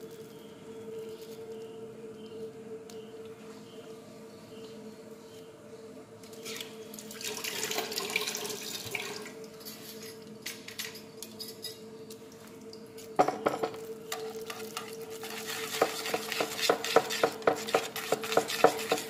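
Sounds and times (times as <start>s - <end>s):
steady hum: 0.0s - 7.9s
wire whisk scraping metal pot: 14.1s - 19.0s.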